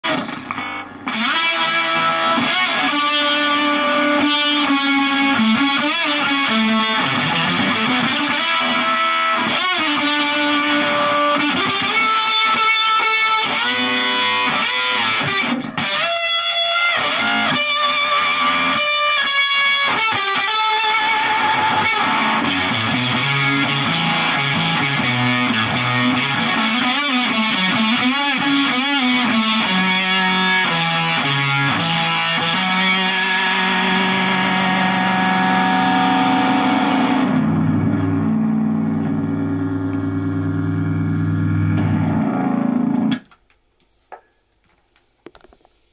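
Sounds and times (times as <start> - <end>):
fuzz electric guitar: 0.0 - 43.2.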